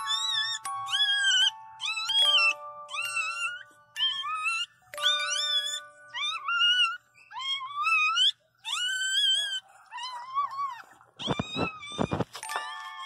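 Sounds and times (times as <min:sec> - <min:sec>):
puppy squealing: 0:00.0 - 0:13.0
scuffling: 0:11.2 - 0:13.0.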